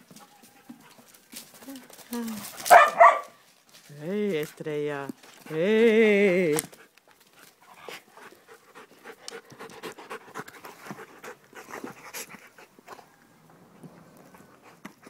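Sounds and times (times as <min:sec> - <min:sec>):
dogs scuffling and jaw clicks: 0:00.0 - 0:15.0
dogs panting: 0:05.2 - 0:06.0, 0:06.7 - 0:15.0.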